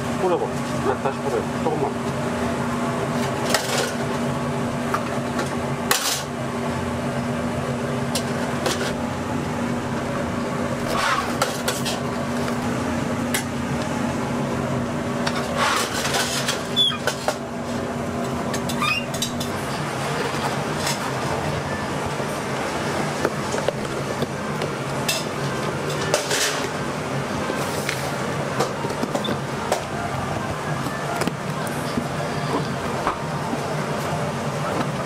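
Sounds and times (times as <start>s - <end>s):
steady machine hum: 0.0s - 35.0s
dishes and containers clattering: 25.9s - 26.7s.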